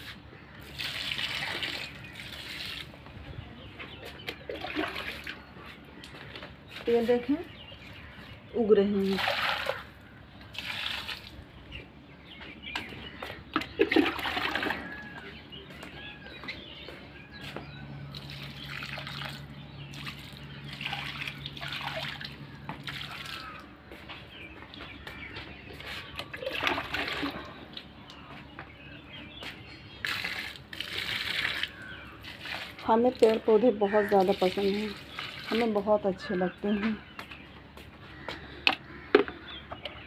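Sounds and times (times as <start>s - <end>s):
water pouring onto soil: 0.6s - 3.0s, 9.1s - 11.4s, 18.1s - 23.6s, 26.2s - 27.5s, 30.0s - 35.8s.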